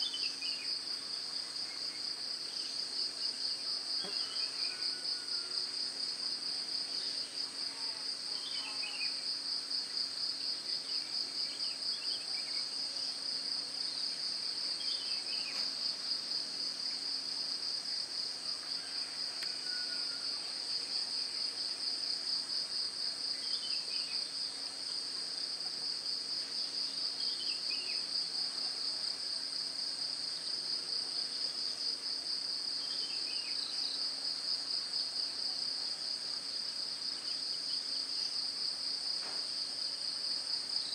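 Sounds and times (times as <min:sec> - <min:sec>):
insect chorus trilling: 0:04.0 - 0:05.9, 0:18.4 - 0:21.2.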